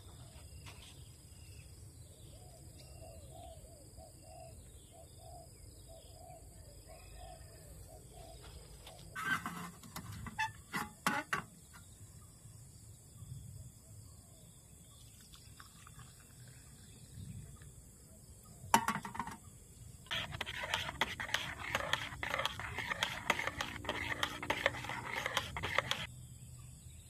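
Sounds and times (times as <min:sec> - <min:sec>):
camping pot knocks: 0:18.8 - 0:19.4
metal spoon stirring in mug: 0:18.8 - 0:19.4, 0:20.1 - 0:26.1.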